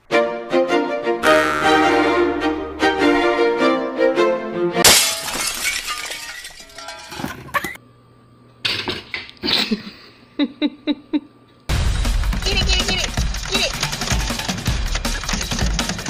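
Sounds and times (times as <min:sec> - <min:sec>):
violin music: 0:00.0 - 0:04.8
loud crash of something breaking: 0:04.8 - 0:07.5
faint hum: 0:07.4 - 0:11.7.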